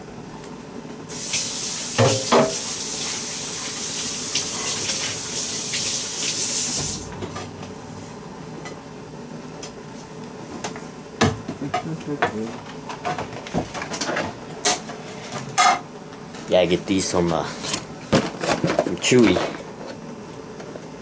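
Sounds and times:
dish knocking against sink: 2.0 - 2.6.

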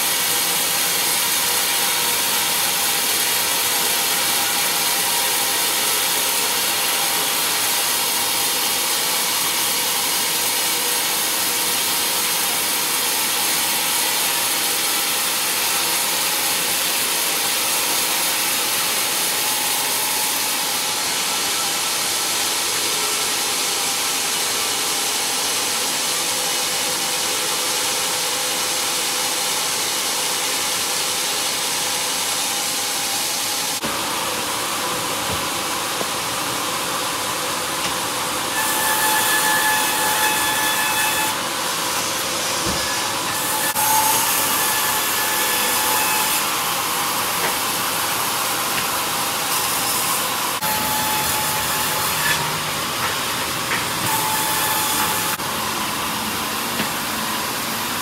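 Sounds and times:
band saw cutting wood: 0.0 - 27.0, 36.8 - 58.0.

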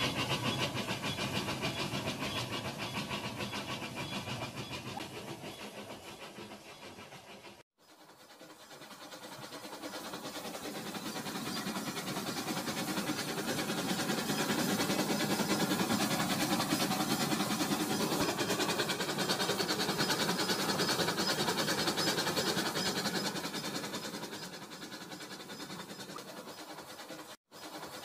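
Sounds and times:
toy train motor whirring: 7.9 - 28.0
toy train wheels clicking: 8.0 - 28.0.

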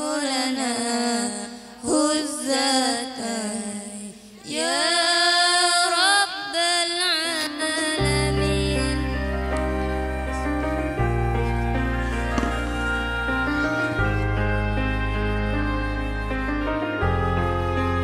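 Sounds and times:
sustained instrumental chord: 8.2 - 18.0.

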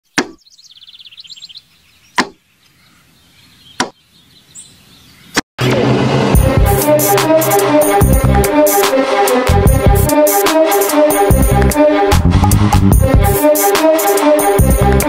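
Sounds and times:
sharp hits: 5.6 - 14.7
electronic music with a beat: 6.4 - 15.0.

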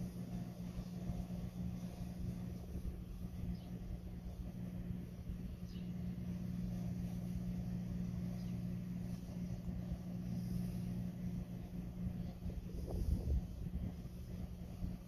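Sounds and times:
distant diesel locomotives droning: 0.0 - 15.0
wind on microphone: 12.1 - 15.0.

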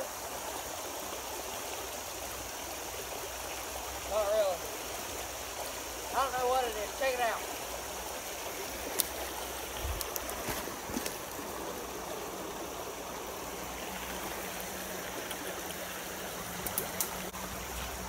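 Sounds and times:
creek rushing over rocks: 0.0 - 18.0
small clicks: 16.6 - 17.2.

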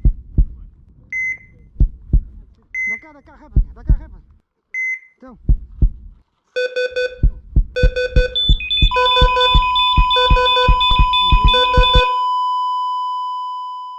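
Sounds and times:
long steady beep: 6.6 - 13.9
rapid electronic beeps with thumps: 7.0 - 12.2.

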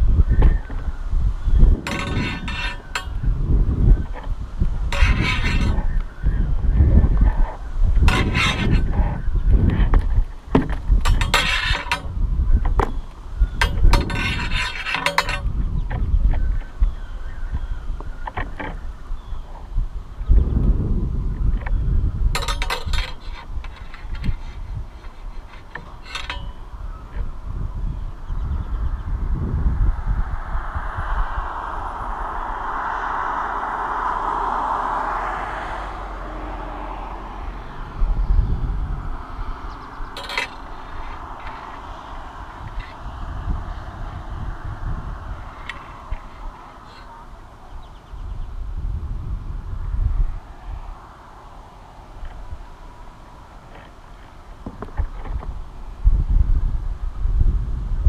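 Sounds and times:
wind buffeting microphone: 0.0 - 58.0
rustling and scraping: 1.7 - 6.1, 6.8 - 16.8, 22.4 - 27.4, 40.0 - 44.2, 52.2 - 55.7
car passing: 29.1 - 48.1, 49.7 - 54.6.

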